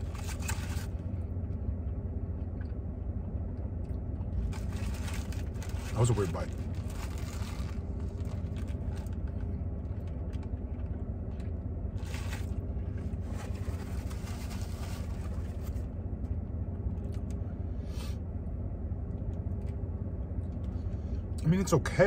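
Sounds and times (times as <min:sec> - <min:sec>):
foil wrapper rustling: 0:00.0 - 0:01.0, 0:04.4 - 0:09.4, 0:12.0 - 0:15.9
car engine idling: 0:00.0 - 0:22.0.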